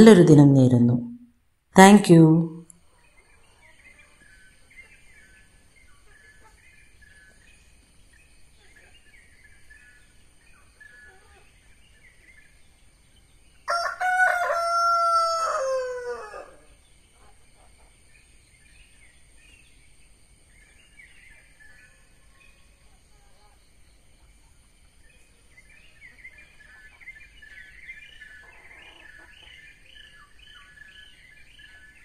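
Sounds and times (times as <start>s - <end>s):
small birds chirping: 1.9s - 32.0s
rooster crowing: 13.7s - 16.7s.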